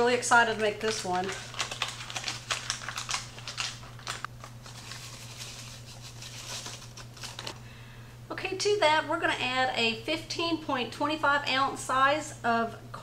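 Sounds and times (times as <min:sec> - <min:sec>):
box and paper bag tearing open: 0:00.9 - 0:07.6.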